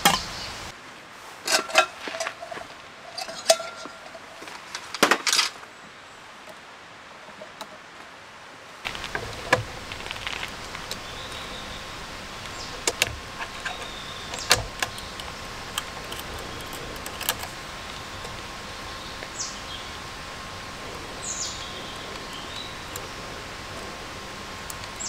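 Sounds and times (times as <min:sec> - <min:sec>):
metal camping gear clicking: 0:01.4 - 0:05.6, 0:08.9 - 0:25.0
carabiner clinking: 0:01.5 - 0:05.6, 0:12.7 - 0:18.3.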